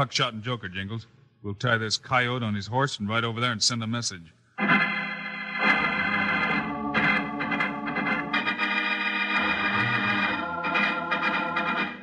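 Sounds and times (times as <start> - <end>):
organ chords: 4.5 - 12.0.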